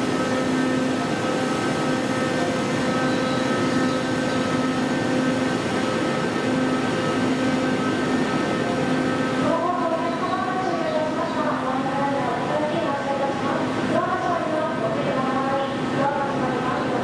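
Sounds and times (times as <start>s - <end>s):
electric train humming: 0.0s - 17.0s.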